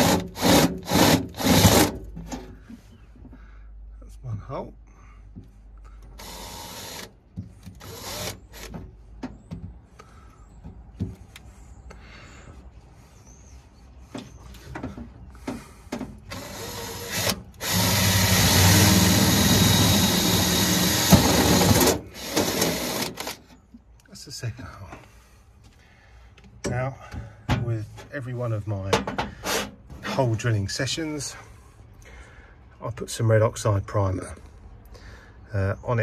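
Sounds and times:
cordless drill cutting steel: 0.0 - 1.9, 6.2 - 7.1, 7.8 - 8.7, 16.3 - 23.4.

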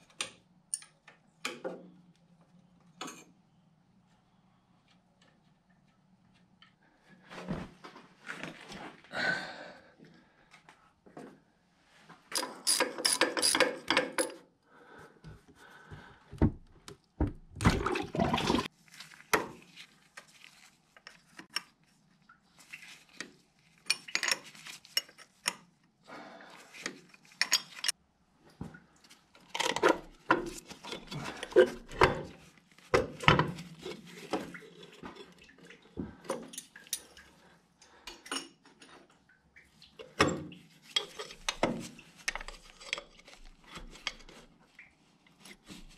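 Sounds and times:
metal tools clanking and scraping: 12.3 - 14.4, 40.9 - 41.7.

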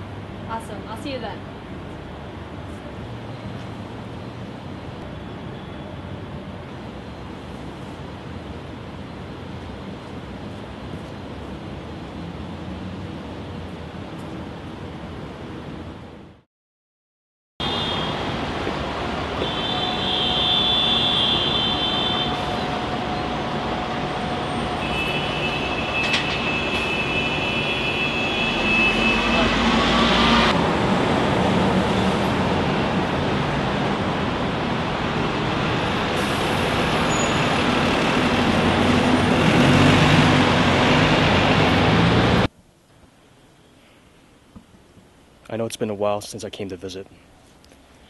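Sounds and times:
city street traffic: 0.0 - 16.5, 17.6 - 48.0
high-pitched squeal: 19.4 - 30.5.

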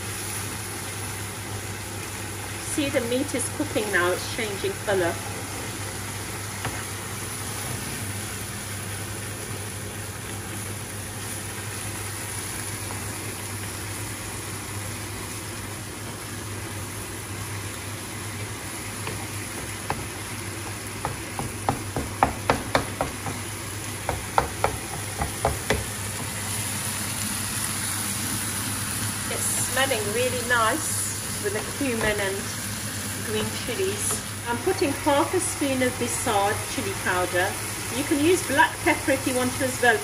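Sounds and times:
meat sizzling in a pan: 0.0 - 40.0
utensil clacking against pan: 21.0 - 23.5, 24.1 - 26.3.

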